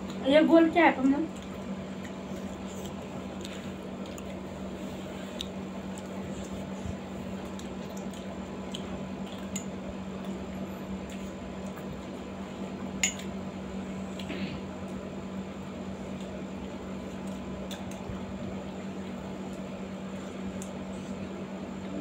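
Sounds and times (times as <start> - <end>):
steady low hum: 0.0 - 22.0
wet squishy chewing: 1.3 - 4.5, 5.2 - 9.6.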